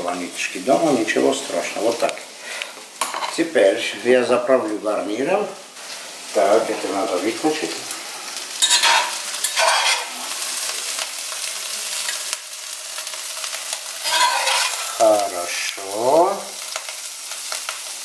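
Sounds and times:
food sizzling in a pan: 0:00.0 - 0:18.0
metal spatula scraping a wok: 0:08.6 - 0:10.4, 0:14.0 - 0:15.0.

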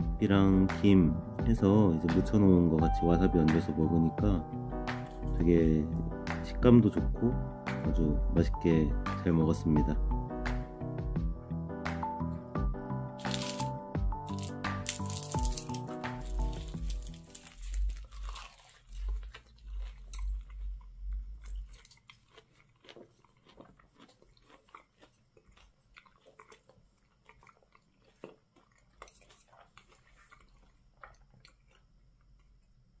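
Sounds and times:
background music: 0:00.0 - 0:18.7
person chewing food: 0:04.8 - 0:05.4, 0:12.0 - 0:32.8.

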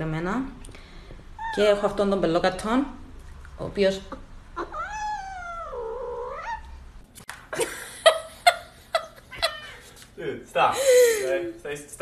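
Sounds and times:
cat meowing: 0:04.6 - 0:06.8, 0:09.3 - 0:09.8.

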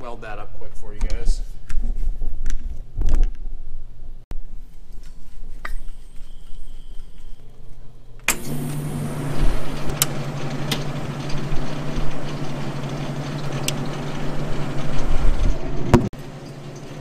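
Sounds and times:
low electrical hum: 0:02.7 - 0:17.0
fan whir: 0:04.8 - 0:17.0.

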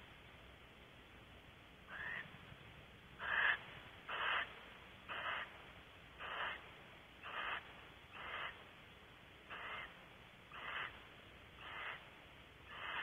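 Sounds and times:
owl hissing rasps: 0:01.9 - 0:02.3, 0:03.2 - 0:05.6, 0:06.2 - 0:08.7, 0:09.4 - 0:13.0.

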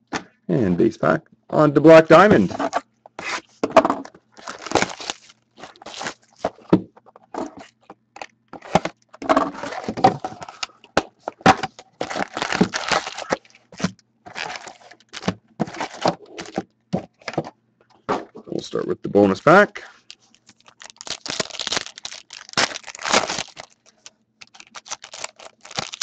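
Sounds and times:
foil packs rustling and clicking: 0:04.3 - 0:06.7, 0:07.5 - 0:10.7, 0:11.3 - 0:17.4, 0:20.0 - 0:26.0
packaging crinkling and tearing: 0:04.3 - 0:06.7, 0:11.8 - 0:16.6, 0:20.0 - 0:26.0.

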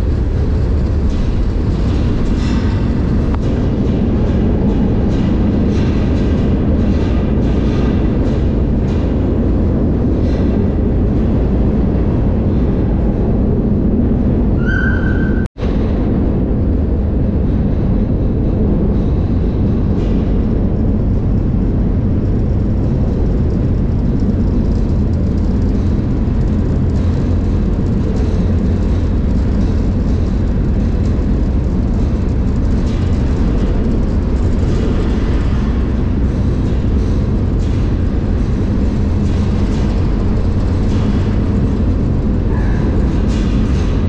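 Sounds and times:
freight train rumbling: 0:00.0 - 0:44.0
faint clicks and rattles: 0:17.3 - 0:44.0.

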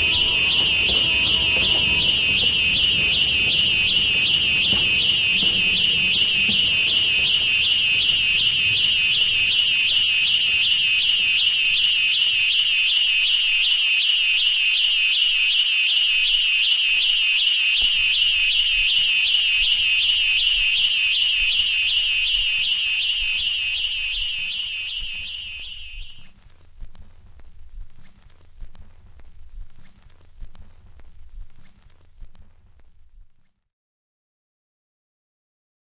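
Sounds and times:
high warbling alarm tone: 0:00.0 - 0:26.2
faint low rumble: 0:26.2 - 0:33.4.

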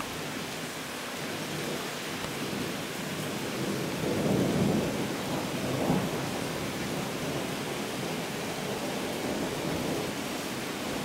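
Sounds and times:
rain downpour hissing: 0:00.0 - 0:11.0
low roll of thunder: 0:02.5 - 0:10.2.

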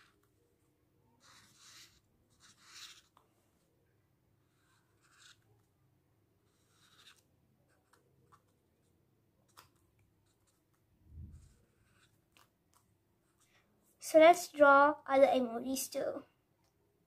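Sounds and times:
marker pen scratching on card: 0:00.0 - 0:00.4, 0:01.0 - 0:03.3, 0:04.4 - 0:05.8, 0:06.4 - 0:13.4.

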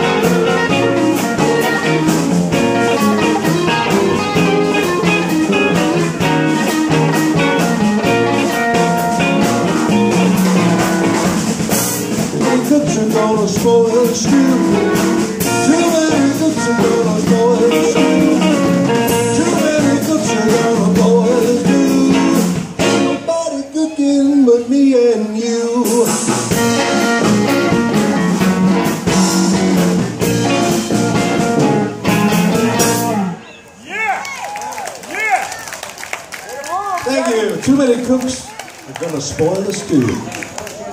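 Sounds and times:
electric guitar bending notes: 0:00.0 - 0:23.4, 0:25.8 - 0:33.5
blues band playing: 0:00.0 - 0:40.9.

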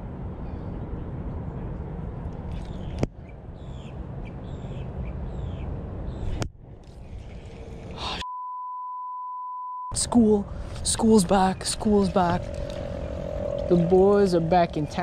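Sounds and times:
wind rumbling on microphone: 0:10.4 - 0:15.0
birds calling: 0:10.6 - 0:15.0.

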